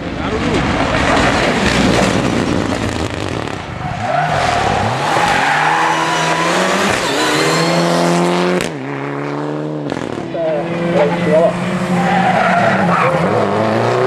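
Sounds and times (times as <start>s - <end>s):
car engine revving hard: 1.4s - 14.0s
tyres squealing: 3.9s - 8.1s.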